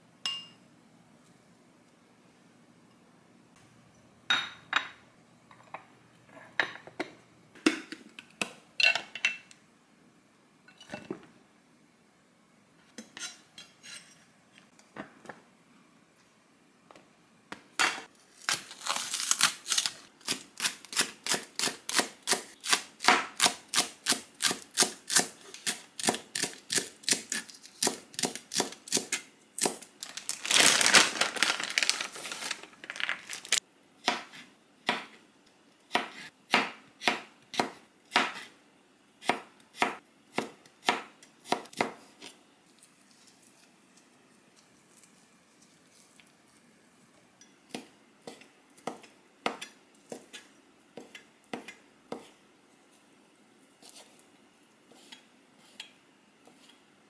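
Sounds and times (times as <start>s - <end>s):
glass and ceramic clinking: 0.3s - 0.6s
knife chopping on cutting board: 35.9s - 38.5s, 39.2s - 42.3s.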